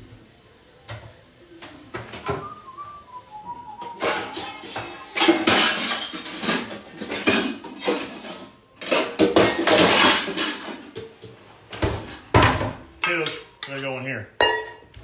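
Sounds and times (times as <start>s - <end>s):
steel bowls clattering and scraping: 3.8s - 11.4s.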